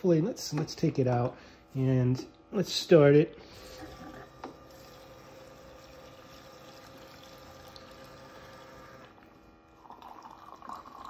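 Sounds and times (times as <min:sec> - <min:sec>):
fuel pump humming: 0:03.3 - 0:11.0
fuel pouring into tank: 0:03.6 - 0:11.0.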